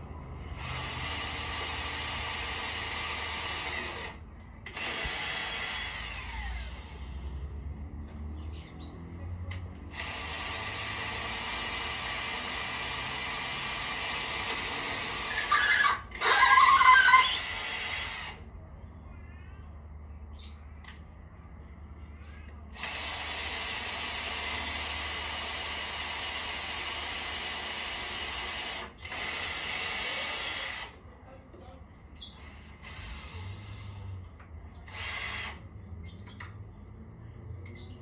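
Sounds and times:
electric power tool running: 0.5 - 7.4, 9.8 - 18.4, 22.7 - 31.0, 34.9 - 35.6.

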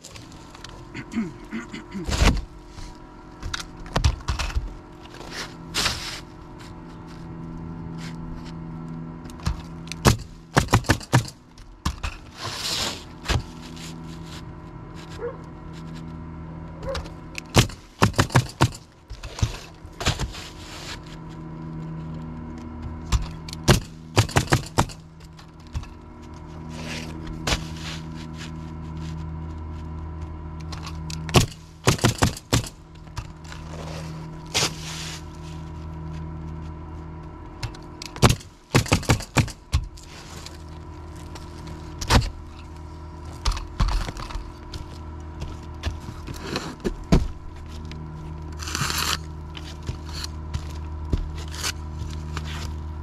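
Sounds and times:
low hum: 0.0 - 53.0
nail gun shots: 10.0 - 11.4, 31.3 - 32.7.

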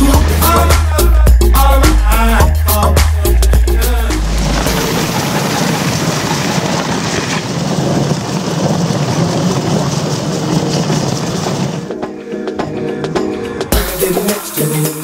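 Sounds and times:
sled and dog paws running on snow: 4.3 - 12.0.

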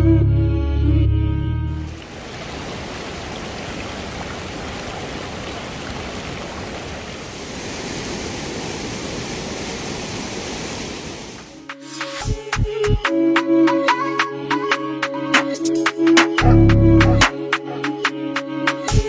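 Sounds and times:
background music: 0.0 - 1.9, 11.6 - 19.0
stream rushing over boulders: 1.9 - 11.6.

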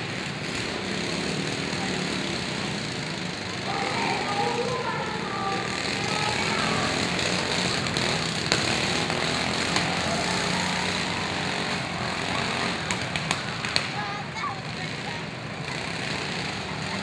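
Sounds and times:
riding lawn mower engines running: 0.0 - 17.0
mowers knocking together: 6.9 - 14.8.

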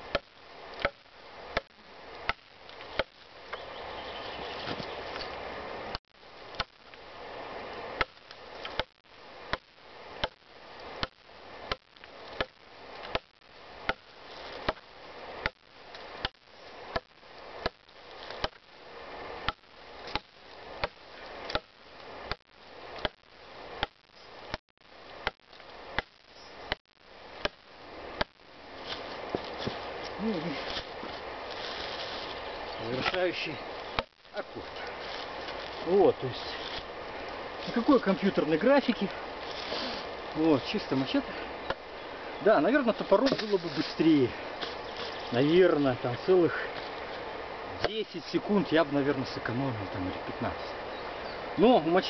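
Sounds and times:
machete chopping wood: 18.4 - 18.6.

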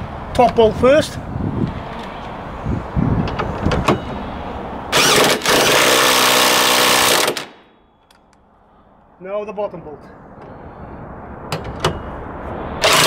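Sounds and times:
electric impact wrench running: 4.9 - 7.5, 12.8 - 13.0.

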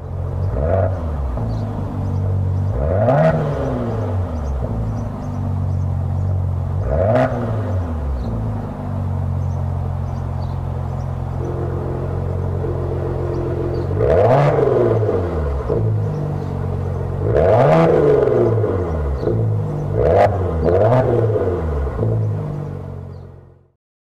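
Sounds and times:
car engine idling with throttle blips: 0.0 - 23.7.

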